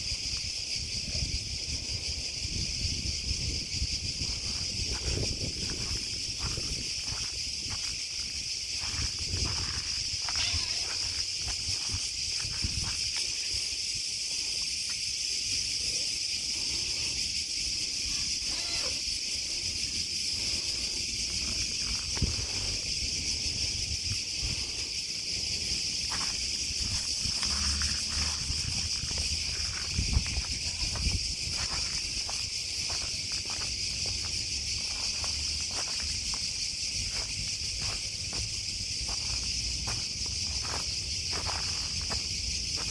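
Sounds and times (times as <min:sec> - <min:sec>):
cicadas droning: 0:00.0 - 0:42.9
footsteps on pine needles: 0:04.5 - 0:13.4, 0:26.1 - 0:42.9.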